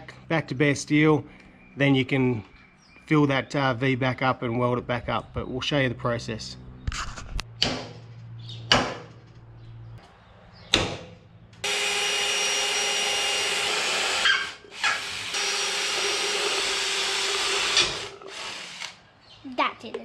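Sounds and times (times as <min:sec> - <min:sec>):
hammer knocks on metal punch: 0:08.7 - 0:09.2
electric drill boring into steel: 0:11.6 - 0:19.0.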